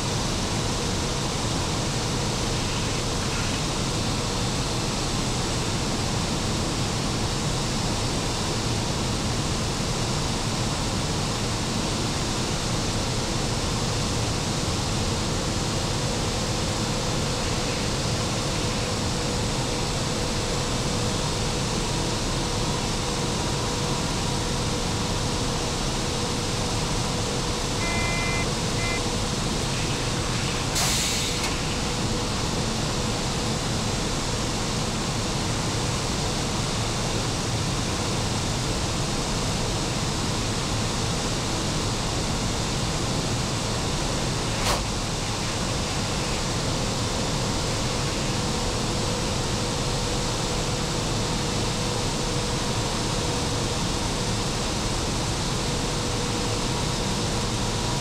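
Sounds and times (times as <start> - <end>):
faint steady hum: 21.4 - 30.8
short double beep: 27.8 - 29.0
brief hiss: 30.8 - 31.7.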